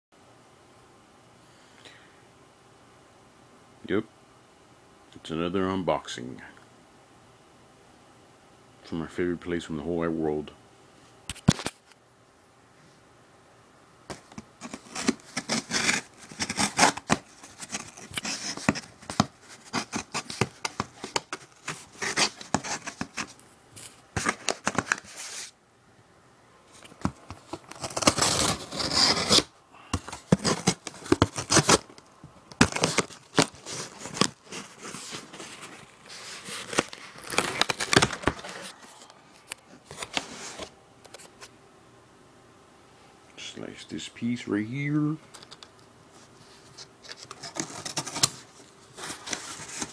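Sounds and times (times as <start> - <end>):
packing tape slit and torn: 14.1 - 25.1, 26.8 - 34.8, 35.5 - 38.7
cardboard flaps rustling: 14.1 - 25.5, 26.7 - 38.8, 46.7 - 49.9.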